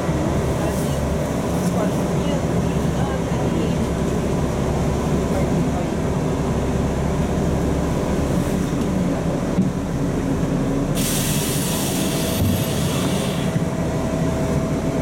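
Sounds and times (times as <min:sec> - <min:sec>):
bus engine rumbling: 0:00.0 - 0:15.0
compressed air hiss: 0:11.0 - 0:13.6.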